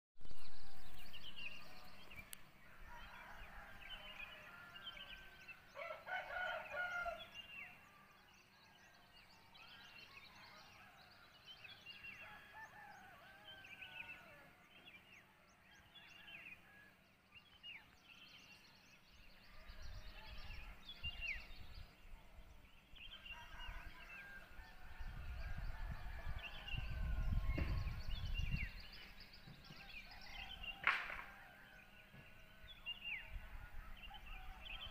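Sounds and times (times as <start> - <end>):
roosters crowing: 2.7 - 7.2.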